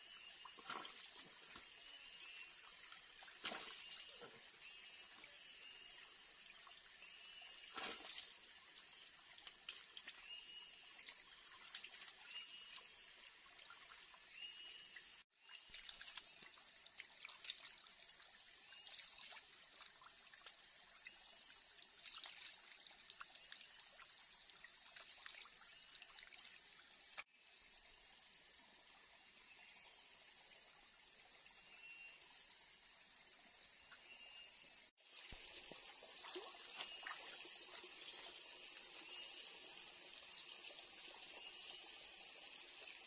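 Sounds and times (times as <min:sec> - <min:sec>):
shallow stream trickling: 0:00.0 - 0:43.0
water splashing from cupped hands: 0:15.7 - 0:20.6, 0:22.0 - 0:27.2.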